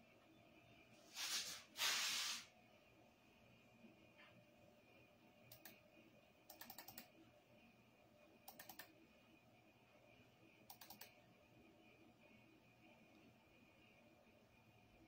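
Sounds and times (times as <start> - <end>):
computer mouse clicks: 5.5 - 5.8, 6.5 - 7.1, 8.4 - 9.0, 10.6 - 11.2.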